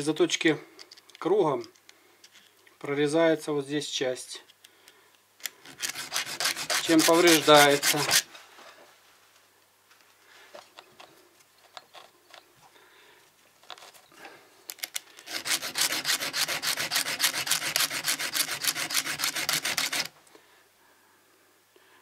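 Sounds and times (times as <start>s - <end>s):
needle file rasping on chain: 5.6s - 8.3s, 15.2s - 20.1s
light clicks and scrapes: 9.9s - 12.8s, 13.6s - 15.3s.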